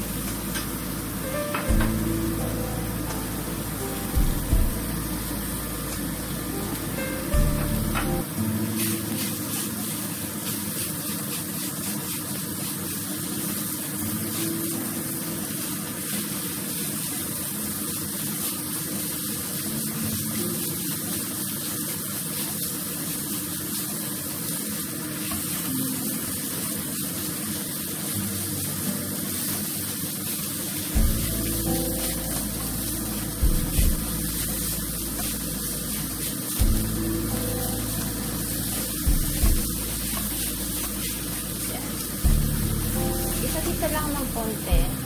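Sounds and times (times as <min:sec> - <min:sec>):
meat sizzling in a frying pan: 0:00.0 - 0:45.0
wooden spatula stirring: 0:34.0 - 0:42.2.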